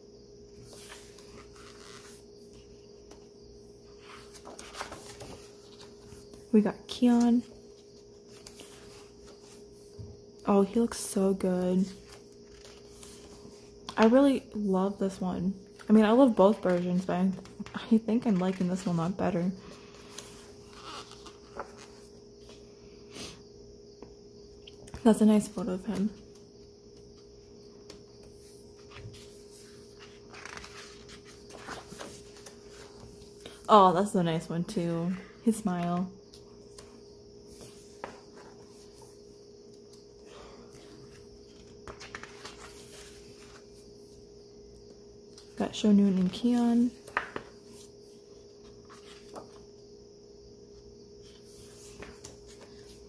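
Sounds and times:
faint steady hum: 0.0s - 53.0s
book page turning: 0.6s - 3.2s, 4.0s - 6.5s, 11.9s - 14.0s, 19.9s - 22.6s, 27.9s - 33.3s, 37.5s - 39.1s, 40.8s - 43.9s, 48.6s - 49.7s, 51.2s - 53.0s
book page rustling and clicking: 4.0s - 6.4s, 20.1s - 22.1s, 30.0s - 33.2s, 41.6s - 43.6s, 48.6s - 49.6s.

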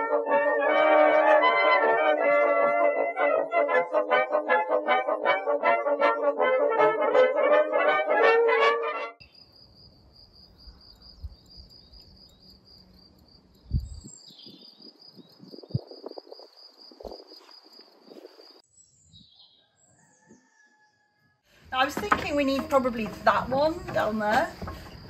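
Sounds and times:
brass music: 0.0s - 9.2s, 22.0s - 24.5s
high insect trill: 9.2s - 18.6s, 21.9s - 25.0s.

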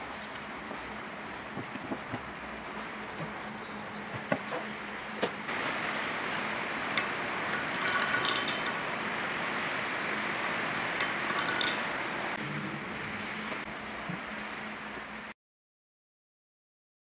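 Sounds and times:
metal engine parts clinking: 0.0s - 5.5s, 6.3s - 9.0s, 11.0s - 12.2s
low hum: 0.0s - 15.3s
workshop hiss: 0.0s - 15.4s.

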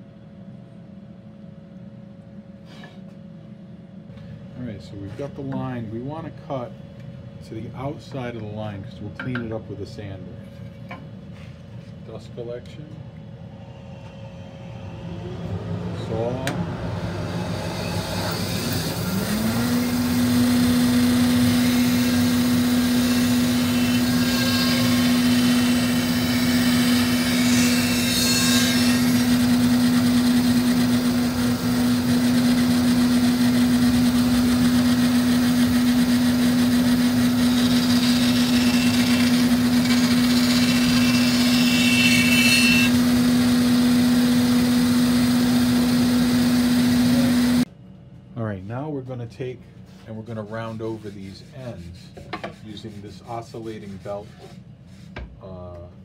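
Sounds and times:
dust collector running: 12.1s - 47.7s
band saw motor humming: 13.4s - 47.7s
saw blade cutting wood: 17.4s - 43.2s.

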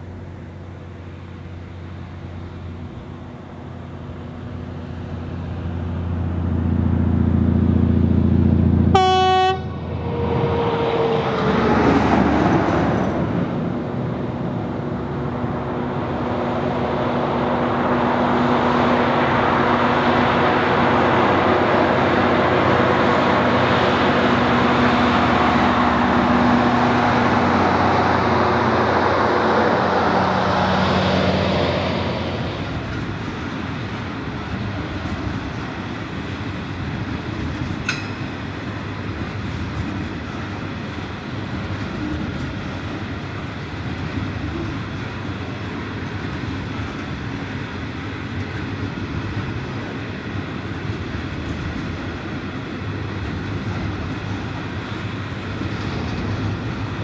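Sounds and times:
diesel locomotives working: 0.0s - 57.0s
train horn blast: 8.9s - 10.7s
wheels on rails: 31.7s - 57.0s.

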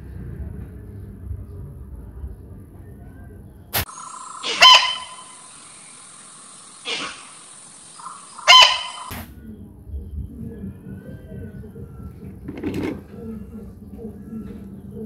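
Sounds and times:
muntjac deer barking: 3.9s - 9.1s.

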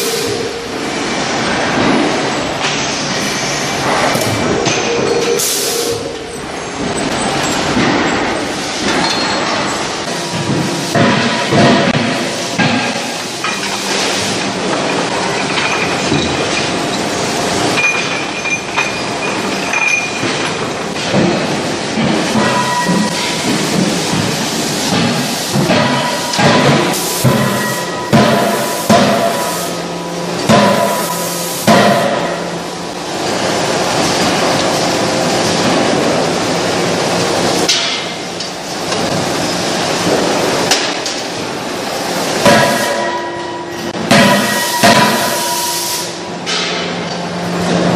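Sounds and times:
rolling machine running: 0.0s - 47.9s
chain conveyor clattering: 3.9s - 10.8s, 13.4s - 25.3s.

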